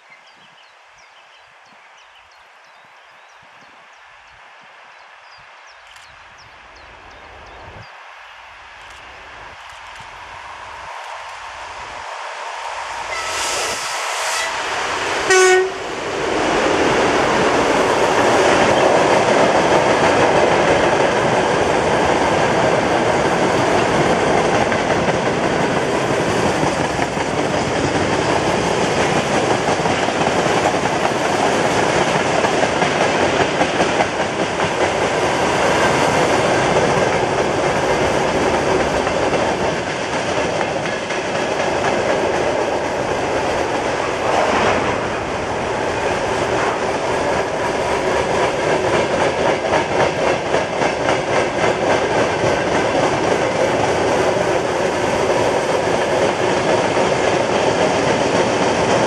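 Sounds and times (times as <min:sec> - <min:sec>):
locomotive horn blast: 0:13.1 - 0:15.9.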